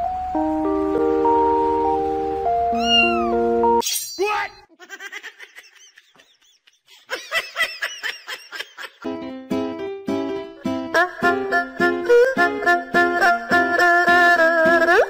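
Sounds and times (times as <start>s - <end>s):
background music: 0.0s - 3.8s, 9.0s - 15.0s
cat chirping: 2.7s - 3.4s.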